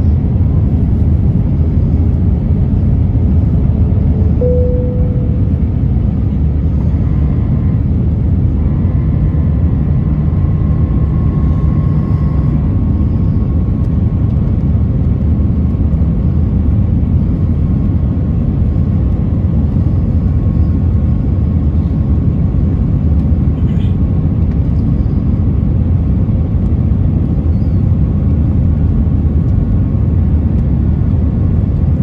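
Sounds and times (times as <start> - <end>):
faint steady whine: 0.0 - 23.4.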